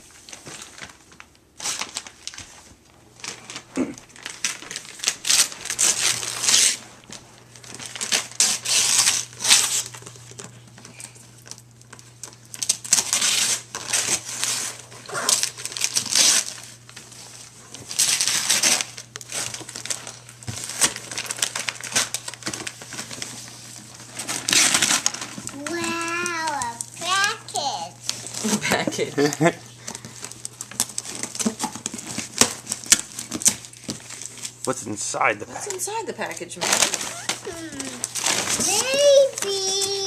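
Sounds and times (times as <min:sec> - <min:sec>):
wrapping paper tearing and crumpling: 0:00.0 - 0:40.0.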